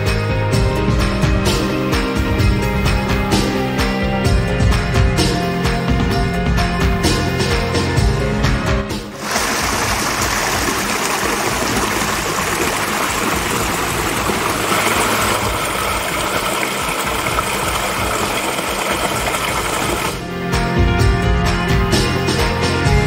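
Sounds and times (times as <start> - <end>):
waterfall rushing and splashing: 9.2 - 20.2.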